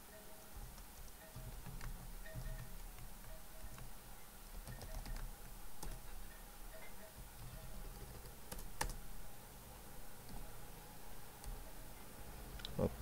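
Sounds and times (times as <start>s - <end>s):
computer keyboard typing: 0.5s - 9.2s, 11.4s - 11.8s.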